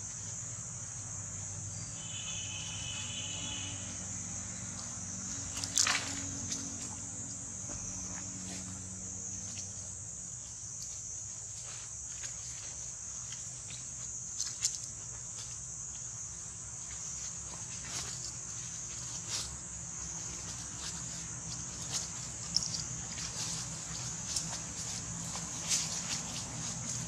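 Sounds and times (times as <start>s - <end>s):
insect chorus drone: 0.0s - 27.0s
dry leaf litter crackling: 17.2s - 27.0s.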